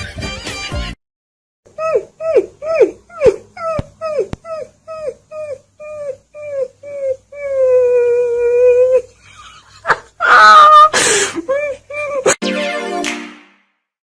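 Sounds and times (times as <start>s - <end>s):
puppy howling and yelping: 1.7s - 9.1s.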